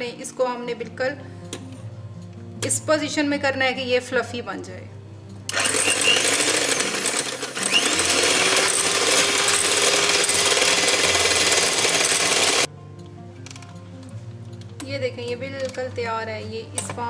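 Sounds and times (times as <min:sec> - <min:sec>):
electric hand mixer whirring: 0:05.5 - 0:12.7
beaters rattling in bowl: 0:05.6 - 0:12.7.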